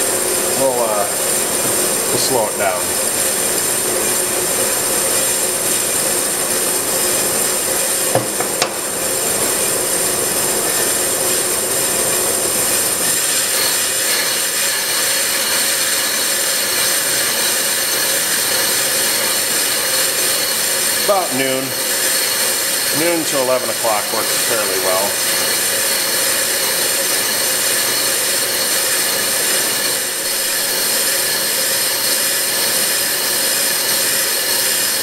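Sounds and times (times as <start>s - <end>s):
brake lathe scraping: 12.0s - 35.0s.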